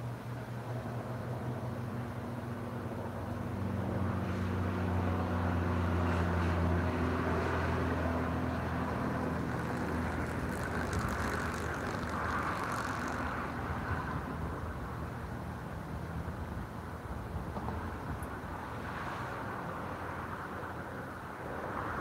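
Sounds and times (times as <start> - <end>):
engine droning: 0.0 - 17.0.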